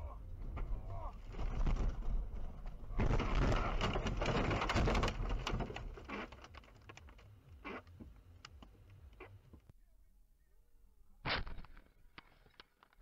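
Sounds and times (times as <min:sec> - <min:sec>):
car crash: 0:00.3 - 0:06.3
debris clicking and knocking: 0:00.3 - 0:07.2.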